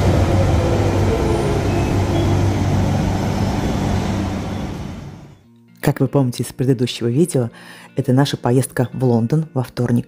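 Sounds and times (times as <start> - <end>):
train motor hum: 0.0 - 5.4
train wheels rumbling on rail: 0.0 - 5.4.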